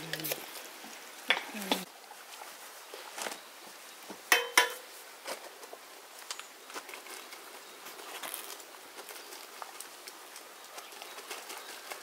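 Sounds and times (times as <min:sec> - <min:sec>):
metal utensils clinking on pot: 0:04.3 - 0:04.9.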